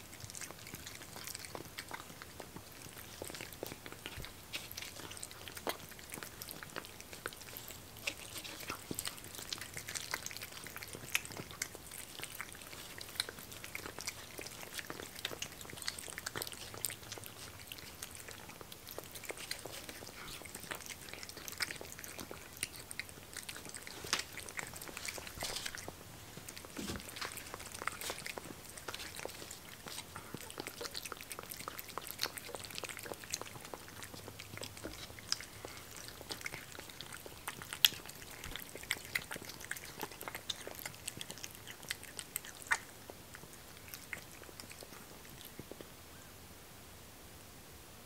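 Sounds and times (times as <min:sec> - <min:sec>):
cats chewing wet food: 0:00.0 - 0:46.0.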